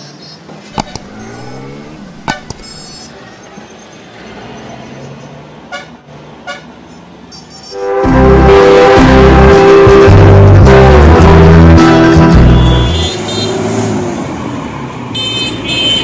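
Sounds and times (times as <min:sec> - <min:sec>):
street traffic noise: 0:00.0 - 0:16.0
vehicle engine revving: 0:00.7 - 0:03.0, 0:08.1 - 0:13.1
short horn beeps: 0:00.8 - 0:03.1, 0:12.3 - 0:13.2.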